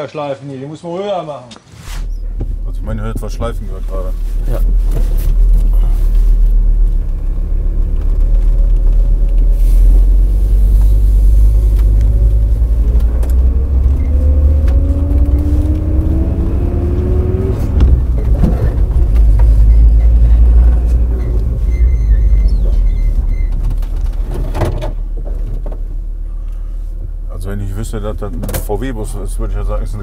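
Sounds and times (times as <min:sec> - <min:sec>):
engine and road rumble: 0:01.5 - 0:30.0
rising whine: 0:09.9 - 0:23.3.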